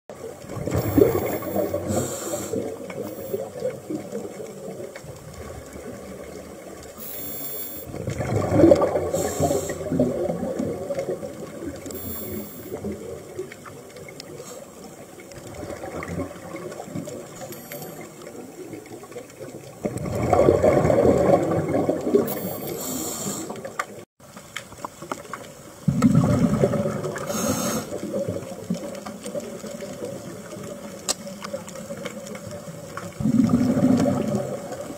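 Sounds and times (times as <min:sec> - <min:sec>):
low wash of water: 0:00.1 - 0:17.6, 0:18.6 - 0:22.6, 0:25.7 - 0:30.8, 0:31.4 - 0:34.9
underwater bubbles rushing: 0:00.1 - 0:34.9.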